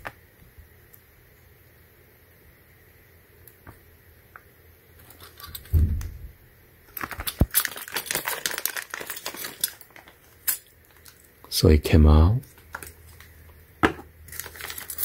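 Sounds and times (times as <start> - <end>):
sharp knock: 5.7 - 6.2
short low hum: 5.7 - 6.5
metal nozzles clinking in plastic bag: 6.9 - 11.3, 14.3 - 15.0
plastic bag crinkling: 6.9 - 11.3, 14.3 - 15.0.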